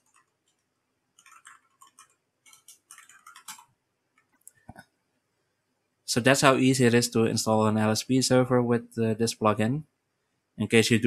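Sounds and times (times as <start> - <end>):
computer keyboard keystrokes: 1.2 - 3.7.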